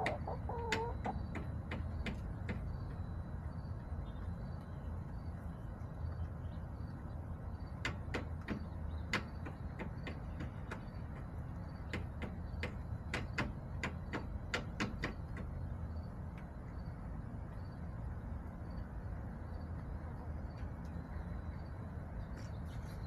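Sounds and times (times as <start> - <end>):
chicken pecking hard surface: 0.0 - 3.0
steady low hum: 0.0 - 23.0.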